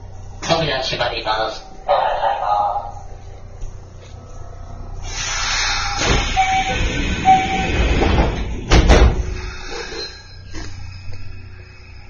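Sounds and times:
train doors hissing: 0:05.0 - 0:12.0
short door warning tones: 0:05.7 - 0:08.5
train doors thudding shut: 0:05.9 - 0:09.9.

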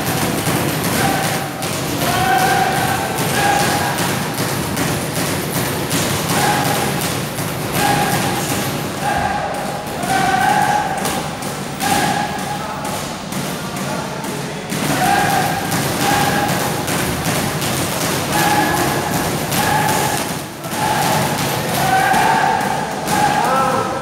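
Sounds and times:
gloved punches thumping: 0:00.0 - 0:08.9, 0:14.7 - 0:22.4.

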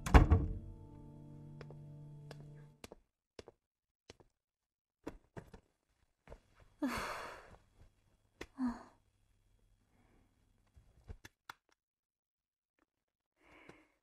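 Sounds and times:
woman sighing: 0:06.8 - 0:07.6, 0:08.5 - 0:09.0.

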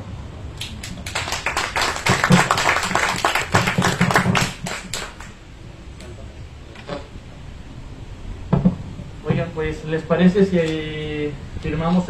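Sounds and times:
people applauding: 0:00.6 - 0:05.4.

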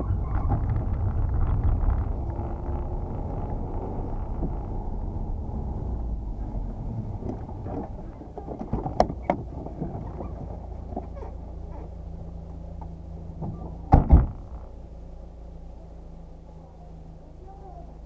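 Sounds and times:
car engine running low: 0:00.0 - 0:18.0
car door thumping: 0:13.4 - 0:14.6.

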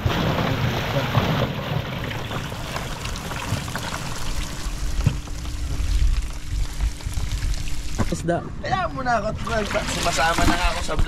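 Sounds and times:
fish and water splashing out: 0:00.0 - 0:08.2.

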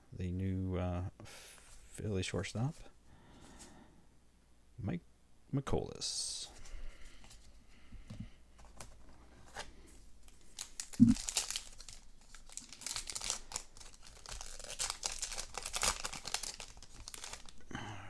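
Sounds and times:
wrapper tearing and crinkling: 0:10.3 - 0:17.6.

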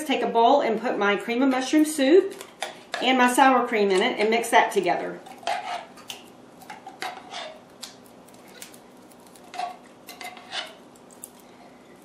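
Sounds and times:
metal spoon scraping tin can: 0:05.3 - 0:05.9, 0:07.0 - 0:07.6, 0:09.5 - 0:10.8.

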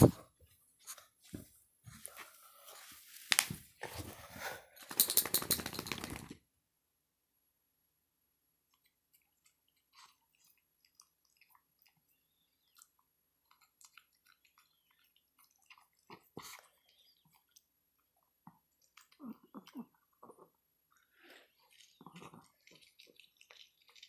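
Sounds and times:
dog licking and chewing: 0:08.7 - 0:24.0.

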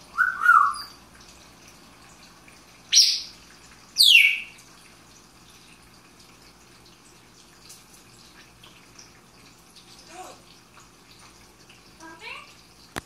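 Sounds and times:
parrot calling: 0:00.1 - 0:01.0, 0:02.9 - 0:03.4, 0:04.0 - 0:04.6.

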